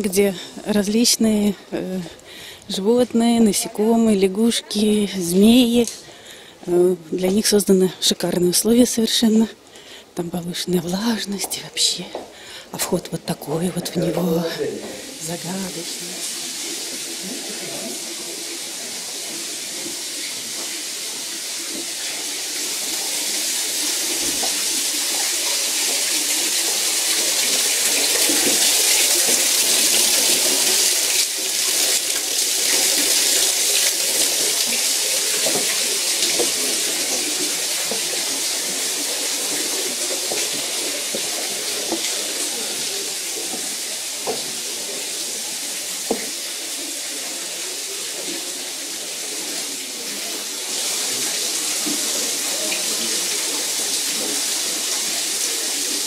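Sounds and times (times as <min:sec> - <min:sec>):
water falling into a pool: 0:14.4 - 0:56.0.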